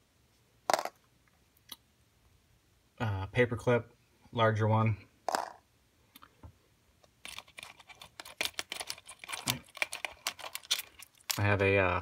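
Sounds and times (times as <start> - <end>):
small metal items rattling in a tin: 7.2 - 11.5.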